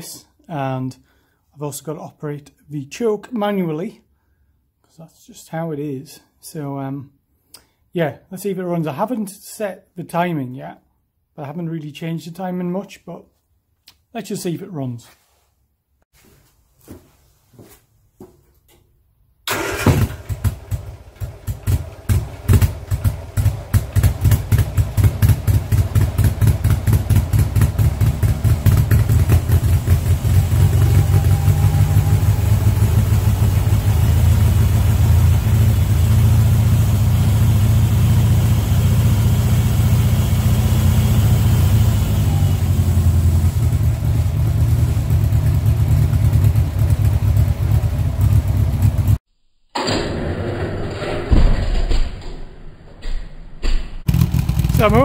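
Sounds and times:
car engine starting and running rough: 19.5s - 49.2s, 54.0s - 55.0s.

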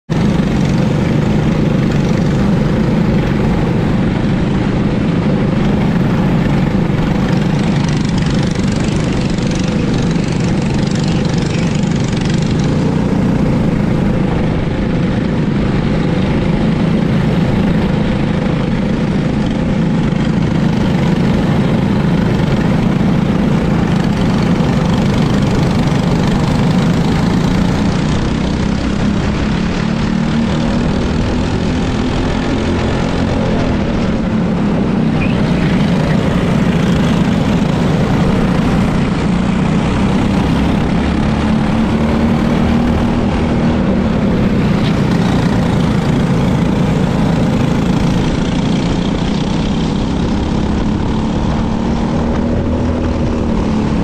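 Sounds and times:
kart engines running: 0.1s - 54.0s.

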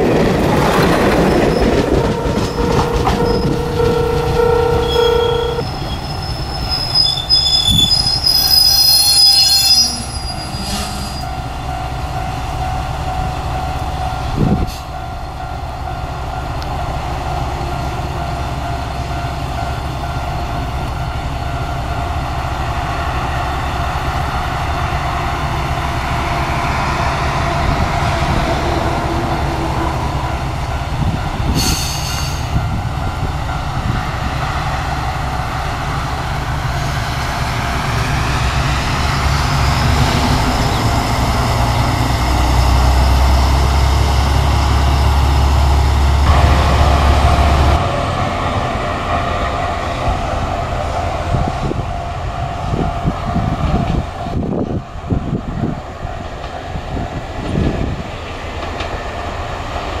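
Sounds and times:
diesel engine rumbling: 0.0s - 8.6s
short high-pitched tone: 2.1s - 5.7s.

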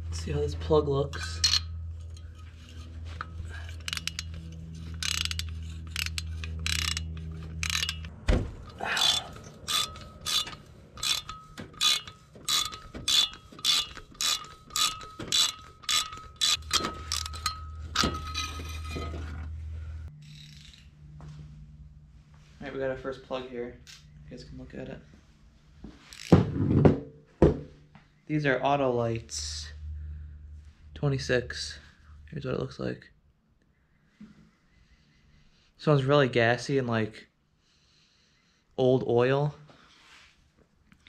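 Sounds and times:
ratchet wrench clicking: 1.3s - 18.6s, 26.1s - 26.3s.

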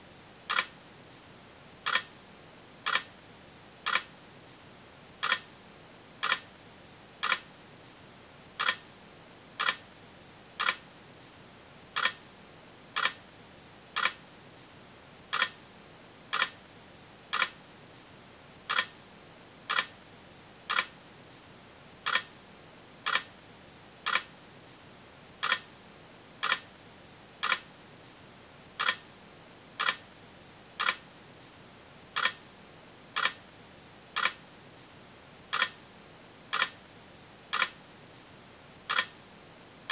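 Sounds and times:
faint steady hiss: 0.0s - 39.9s.

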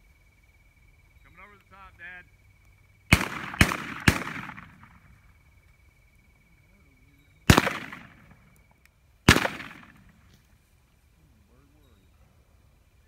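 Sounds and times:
shotgun shots with echo: 3.1s - 5.1s, 7.5s - 8.5s, 9.3s - 10.2s.

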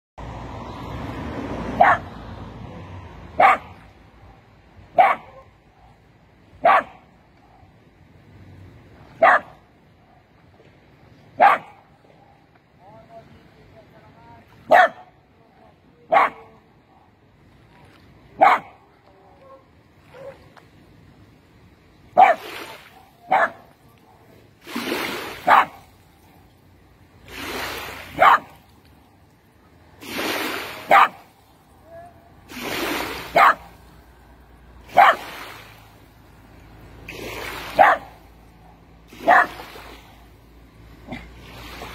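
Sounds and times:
water splashing and sloshing: 0.2s - 15.8s, 16.8s - 41.9s
dog barking: 1.8s - 2.1s, 3.4s - 6.0s, 6.6s - 7.7s, 9.2s - 10.3s, 11.4s - 12.4s, 14.7s - 15.2s, 16.1s - 17.1s, 18.4s - 18.8s, 19.4s - 20.5s, 22.2s - 24.2s, 25.4s - 25.9s, 28.1s - 28.6s, 30.8s - 31.3s, 33.3s - 33.7s, 34.9s - 35.3s, 37.7s - 39.6s.

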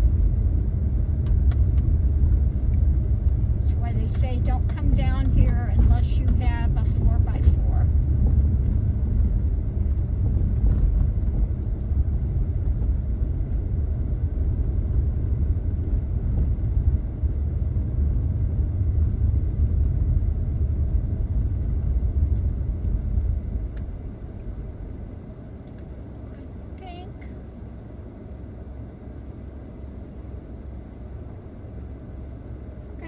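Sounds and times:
car engine and tyres rumbling: 0.0s - 33.0s.

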